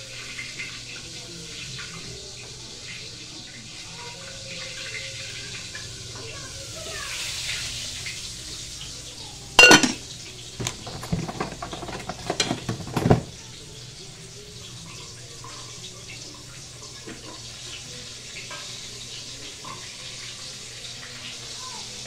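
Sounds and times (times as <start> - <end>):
pots and pans clattering: 9.6 - 13.6.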